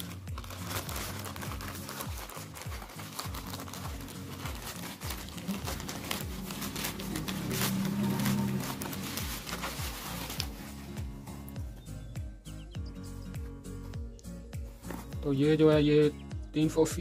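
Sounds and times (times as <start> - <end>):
plastic bag crinkling and tearing: 0.0 - 10.8
background music with beat: 0.0 - 17.0.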